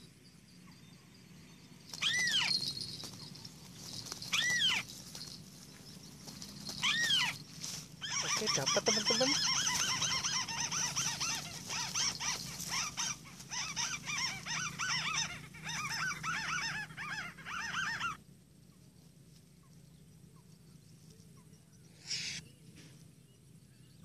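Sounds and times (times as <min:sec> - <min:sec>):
bird chattering call: 0:01.9 - 0:18.2, 0:21.9 - 0:22.4.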